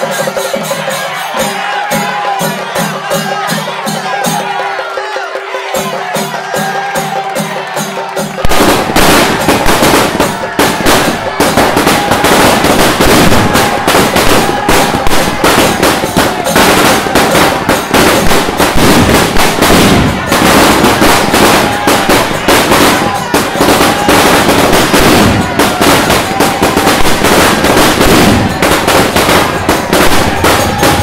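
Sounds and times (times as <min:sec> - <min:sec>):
music with drum beat: 0:00.0 - 0:31.0
firecrackers crackling: 0:06.6 - 0:31.0.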